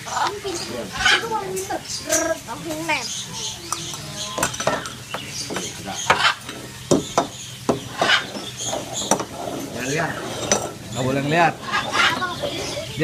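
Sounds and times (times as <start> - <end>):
metal cups clinking: 3.7 - 7.3, 8.0 - 11.2
metal cups sliding on wood: 3.9 - 13.0.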